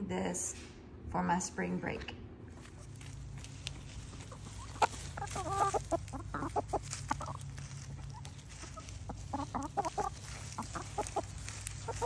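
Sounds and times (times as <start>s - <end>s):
chickens clucking: 2.5s - 12.0s.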